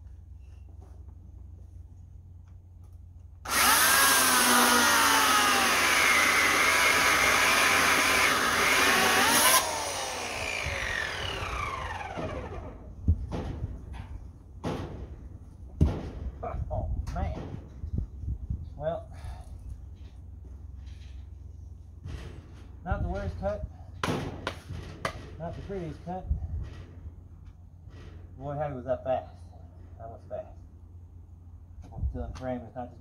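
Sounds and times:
electric chainsaw cutting log: 0:03.4 - 0:12.9
knocks: 0:15.8 - 0:16.3.

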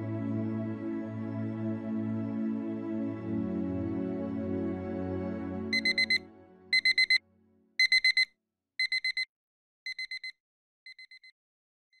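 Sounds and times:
soft background music: 0:00.0 - 0:07.0
alarm clock beeping: 0:05.7 - 0:07.2, 0:07.8 - 0:09.3, 0:09.9 - 0:10.3, 0:10.9 - 0:11.3.

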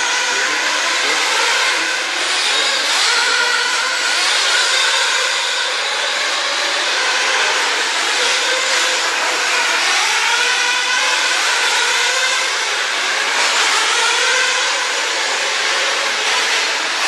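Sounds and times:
rc car motors whining: 0:00.0 - 0:17.0.

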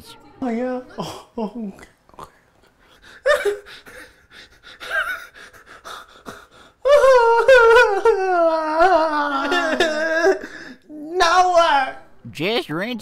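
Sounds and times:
man breathing heavily: 0:02.4 - 0:06.9
man wailing cry: 0:06.8 - 0:12.1.

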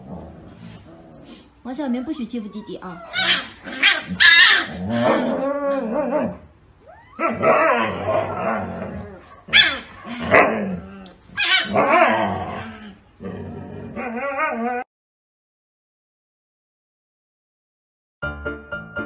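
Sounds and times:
dog howling: 0:02.0 - 0:12.7, 0:13.9 - 0:14.9
dog barking: 0:03.1 - 0:04.8, 0:09.3 - 0:10.6, 0:11.4 - 0:12.1.

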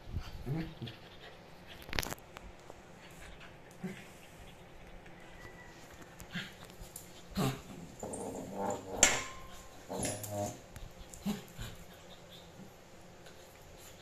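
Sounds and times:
dogs growling: 0:06.2 - 0:12.8.

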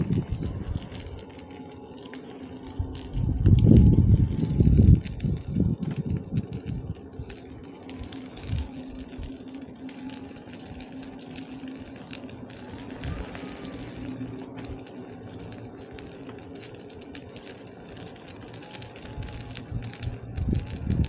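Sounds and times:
wind noise: 0:00.0 - 0:01.3, 0:02.6 - 0:09.4, 0:12.7 - 0:14.8, 0:19.1 - 0:21.0
electric motor hum: 0:00.0 - 0:21.0.

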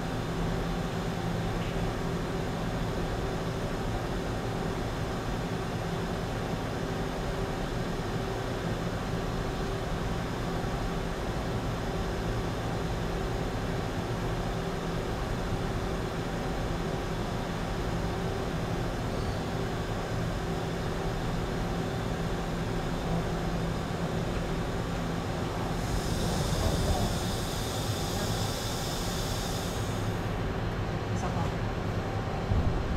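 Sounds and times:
high hiss: 0:25.6 - 0:30.3.

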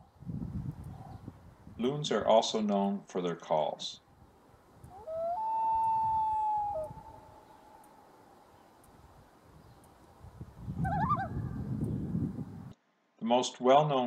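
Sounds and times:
loon wailing: 0:04.9 - 0:08.1.

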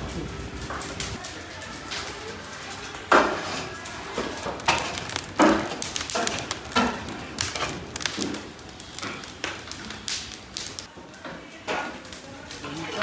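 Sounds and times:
metal skimmers scraping cauldrons: 0:01.0 - 0:10.9.

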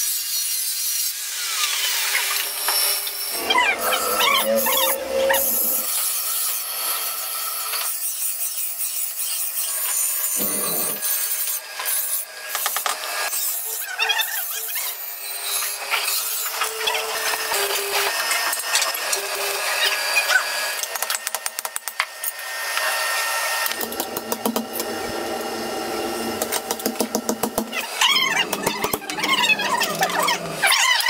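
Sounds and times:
blades being ground and filed: 0:00.0 - 0:21.1, 0:23.8 - 0:31.0.

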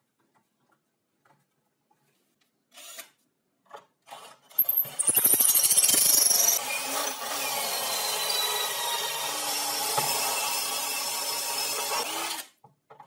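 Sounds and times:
power drill boring into wood: 0:04.6 - 0:12.5.

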